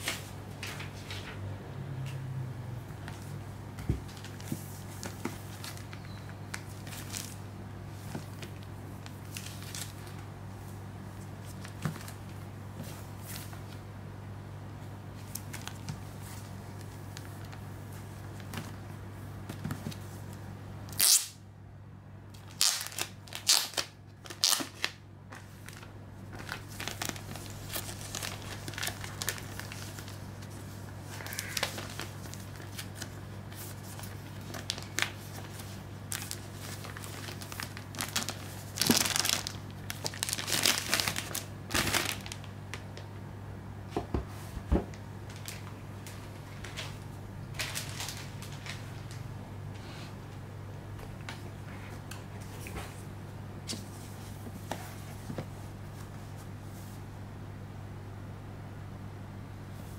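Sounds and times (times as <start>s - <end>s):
steady low hum: 0.0s - 59.9s
plastic shrink-wrap crinkling: 4.0s - 10.3s, 15.2s - 18.7s, 22.4s - 43.0s, 45.3s - 49.3s.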